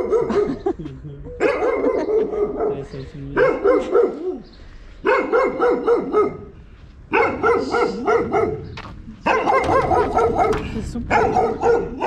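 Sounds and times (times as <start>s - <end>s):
dog barking rapidly: 0.0s - 0.6s, 1.4s - 2.8s, 3.4s - 4.4s, 5.0s - 6.5s, 7.1s - 12.0s.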